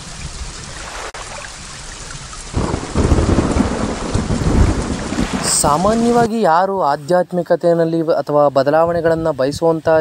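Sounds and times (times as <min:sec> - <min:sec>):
steady rain falling: 0:00.0 - 0:06.6
thunder rolling: 0:02.5 - 0:06.3.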